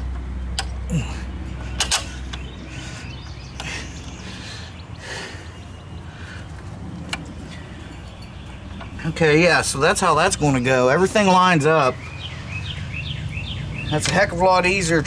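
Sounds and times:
metal clicks of a bolt: 1.8s - 2.4s.

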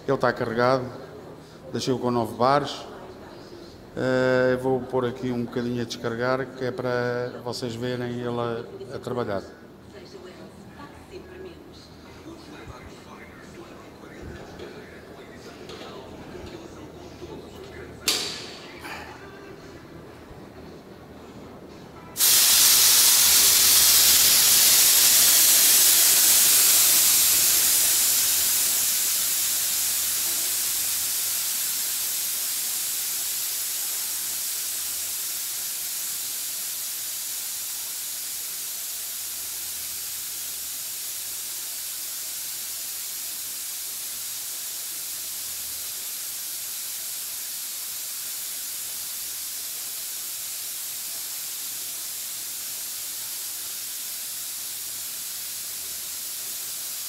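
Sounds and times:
compressed air hissing from blow gun: 22.2s - 57.0s.

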